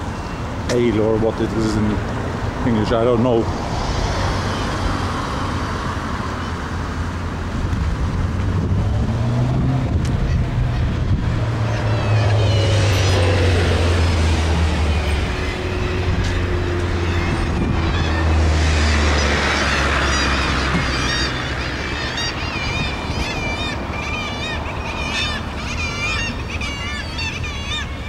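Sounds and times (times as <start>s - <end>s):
low engine rumble of traffic: 0.0s - 28.0s
vehicle passing: 1.0s - 28.0s.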